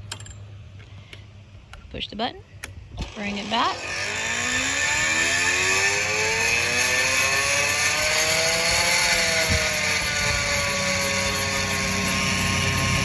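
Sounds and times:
electric tiller motor whining: 3.0s - 13.0s.

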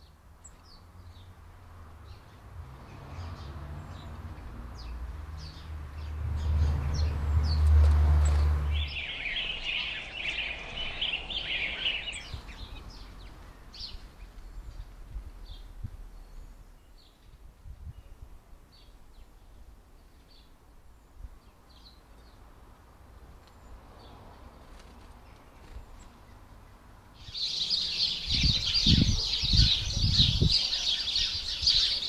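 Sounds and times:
small birds twittering: 2.0s - 22.5s, 25.2s - 32.0s
high bird chirps: 8.6s - 13.1s, 27.2s - 32.0s.

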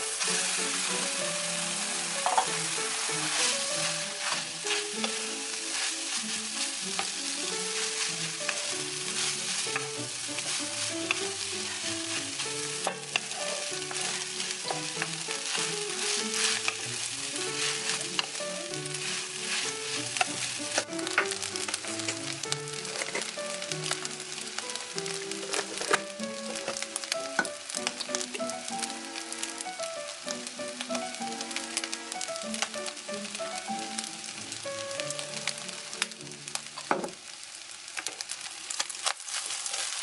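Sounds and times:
spatula scraping a pan: 0.0s - 24.8s, 25.4s - 27.8s, 39.0s - 40.0s
rice sizzling in a wok: 0.0s - 40.0s.

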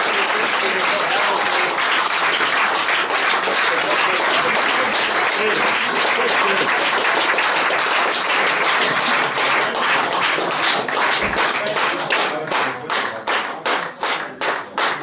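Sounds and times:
crowd applauding: 0.0s - 15.0s.

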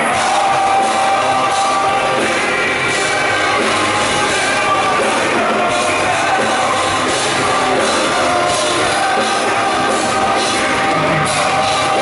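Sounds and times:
lead singer's voice: 0.0s - 12.0s
live rock band: 0.0s - 12.0s.

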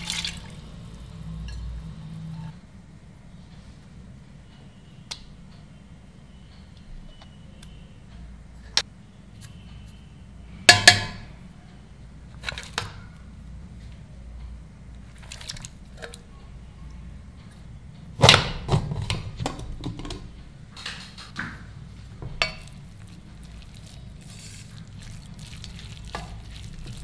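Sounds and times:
metal bowls clinking on pot: 22.2s - 27.0s.

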